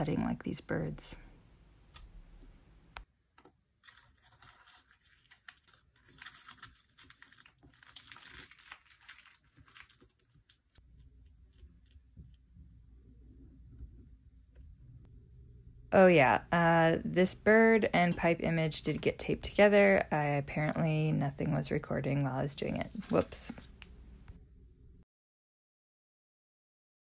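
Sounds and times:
paper rustling and crinkling: 3.8 - 10.8, 22.5 - 23.9.

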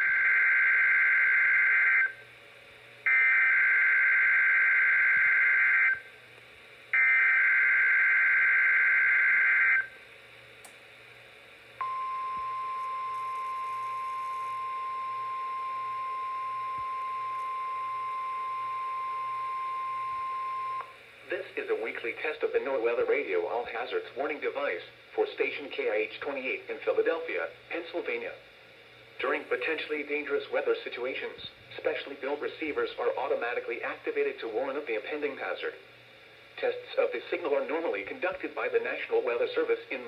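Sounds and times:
steady warning alarm tone: 0.0 - 2.2, 3.0 - 6.2, 6.9 - 10.0, 11.8 - 21.4.

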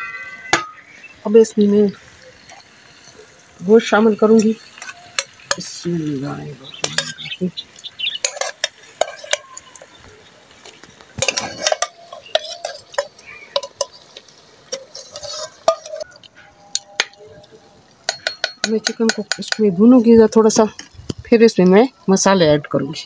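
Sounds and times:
meat sizzling in hot oil: 1.2 - 16.2
metal ladle clinking on pot: 8.2 - 9.6, 11.2 - 17.3, 18.0 - 19.7.

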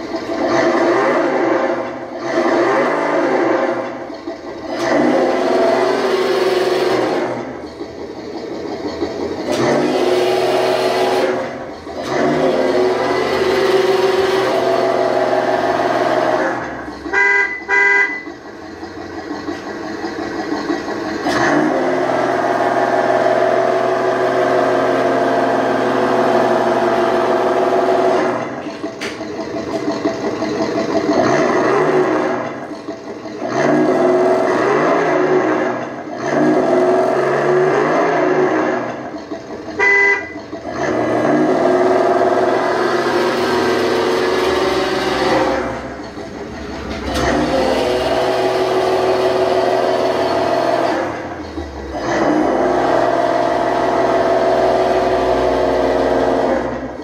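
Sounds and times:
simulated engine sound from speaker: 0.0 - 57.0
horn toot: 17.1 - 18.3, 39.8 - 40.4.

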